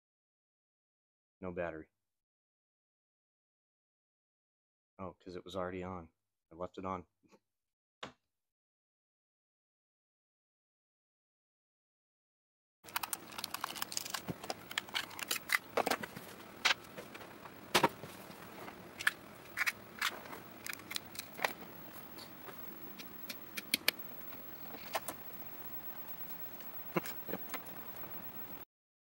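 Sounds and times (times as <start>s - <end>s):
plastic console and cables handled: 12.9s - 25.3s, 26.1s - 28.2s.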